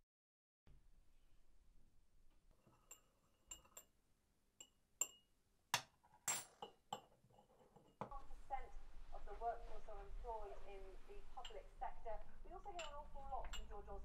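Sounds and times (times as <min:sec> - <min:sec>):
teaspoon clinking china cups: 0:02.7 - 0:03.9, 0:04.6 - 0:05.3, 0:11.4 - 0:11.7, 0:12.6 - 0:14.0.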